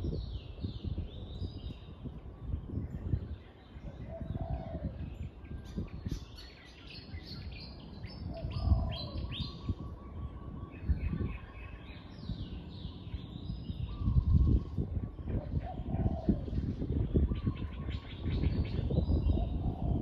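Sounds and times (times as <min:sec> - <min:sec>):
small birds chirping: 0:00.0 - 0:20.0
dove cooing: 0:03.8 - 0:05.0, 0:08.3 - 0:10.0, 0:15.3 - 0:16.6, 0:19.3 - 0:20.0.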